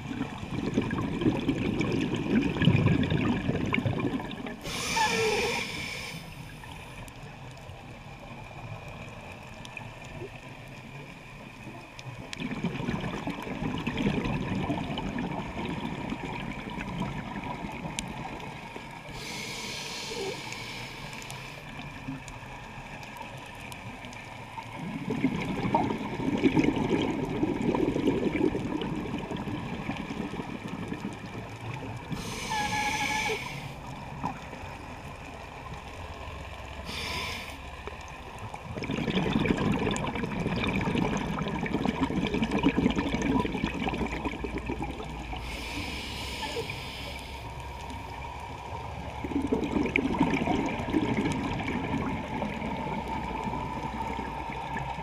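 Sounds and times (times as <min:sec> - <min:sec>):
hissing regulator inhalations: 0:04.6 - 0:06.6, 0:19.1 - 0:21.7, 0:32.2 - 0:33.8, 0:36.9 - 0:37.6, 0:45.4 - 0:47.5
bubbling exhalations: 0:24.8 - 0:31.0, 0:38.6 - 0:47.2, 0:49.2 - 0:52.6.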